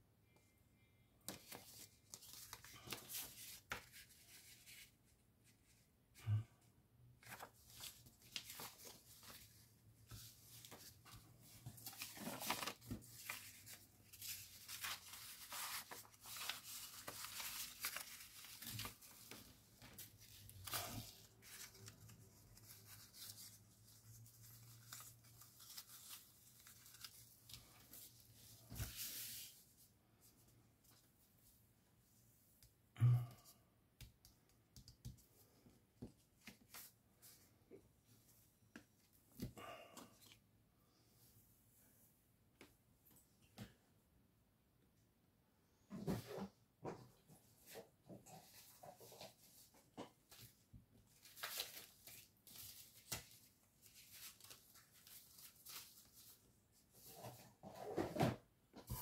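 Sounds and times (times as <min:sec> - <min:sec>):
paper rustling and tearing: 0:07.2 - 0:10.8, 0:11.7 - 0:27.9.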